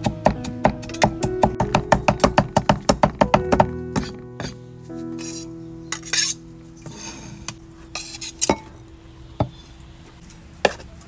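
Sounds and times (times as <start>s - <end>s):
light metal scraping: 5.1s - 8.8s.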